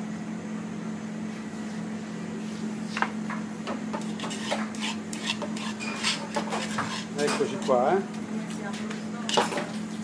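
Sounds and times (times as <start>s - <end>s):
steady low hum: 0.0s - 10.0s
metal utensil scraping a pan: 4.0s - 8.0s.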